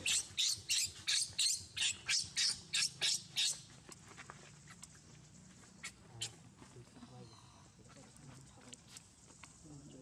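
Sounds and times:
baby monkey squealing: 0:00.0 - 0:03.6.

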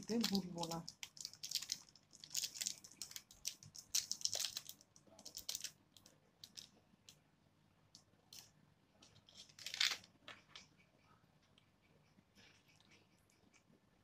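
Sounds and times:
plastic sachet crinkling: 0:00.0 - 0:06.7, 0:09.3 - 0:10.1.

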